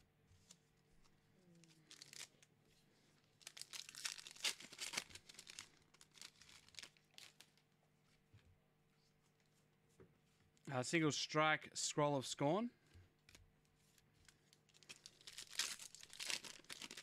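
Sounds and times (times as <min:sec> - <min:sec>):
foil wrapper tearing and crinkling: 0:01.6 - 0:02.4, 0:03.4 - 0:07.6, 0:14.2 - 0:17.0.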